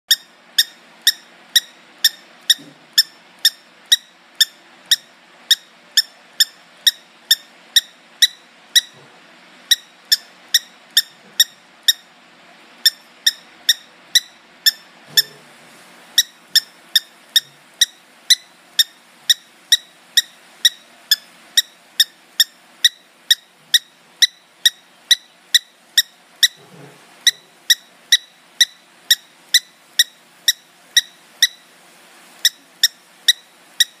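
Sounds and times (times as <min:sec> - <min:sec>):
cockatiel squeaky chirps: 0:00.1 - 0:09.0, 0:09.7 - 0:12.1, 0:12.8 - 0:15.4, 0:16.2 - 0:31.7, 0:32.4 - 0:34.0.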